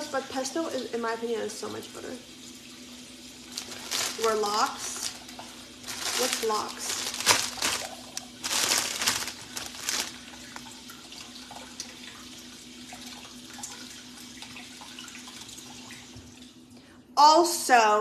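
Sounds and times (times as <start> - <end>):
plastic crinkling: 3.5 - 10.8.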